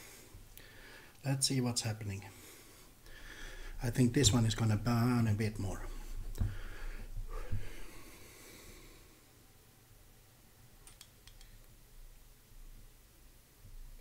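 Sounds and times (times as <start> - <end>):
man breathing heavily through nose: 0.0 - 1.2, 2.3 - 3.8, 6.0 - 9.4.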